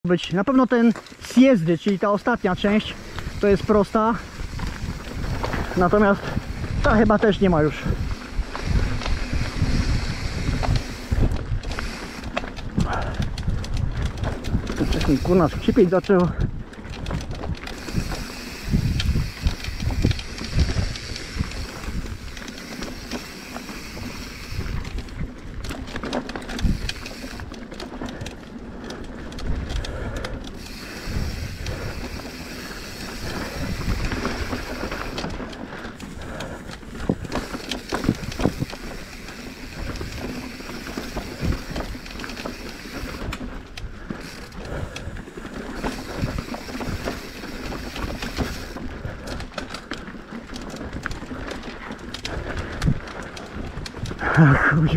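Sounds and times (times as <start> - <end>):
bike tyre trail noise: 0.0 - 54.9
bike knocks and rattles: 2.6 - 54.2
wind on microphone: 3.0 - 22.4, 26.5 - 27.4, 29.4 - 49.4.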